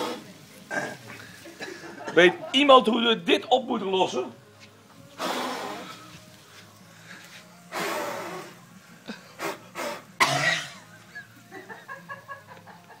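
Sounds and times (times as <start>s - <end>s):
man blowing hard: 0.0s - 0.8s, 5.1s - 6.2s, 7.6s - 11.0s.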